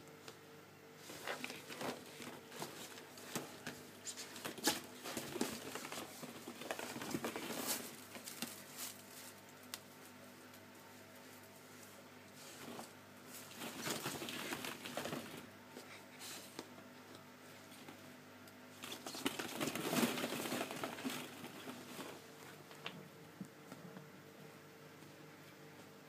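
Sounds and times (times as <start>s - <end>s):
plastic balls clattering: 18.8s - 22.2s.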